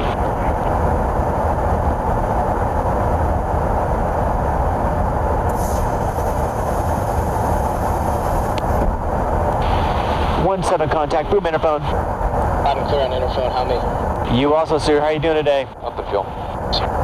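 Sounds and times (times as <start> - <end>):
aircraft airflow and engines rushing: 0.0 - 17.0
brief high hiss: 5.5 - 6.0.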